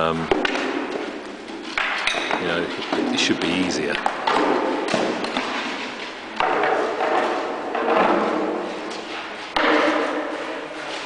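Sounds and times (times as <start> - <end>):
spear shafts thudding on wooden shields: 4.0 - 8.7, 9.5 - 10.4.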